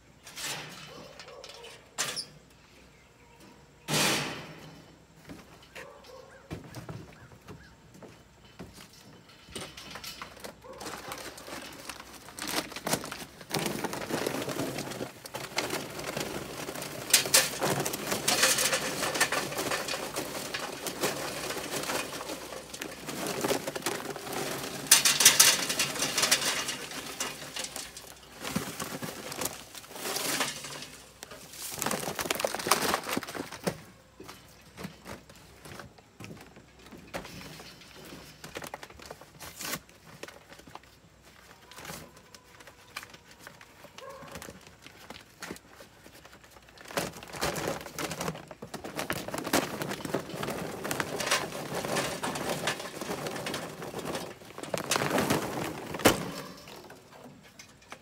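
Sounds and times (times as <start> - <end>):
briquettes rattling into metal: 8.4 - 35.2, 46.2 - 58.0
paper bag rustling: 9.6 - 57.4.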